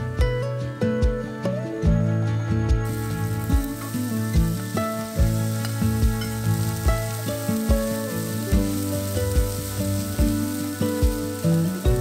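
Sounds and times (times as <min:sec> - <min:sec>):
background music: 0:00.0 - 0:12.0
food sizzling in oil: 0:02.8 - 0:12.0.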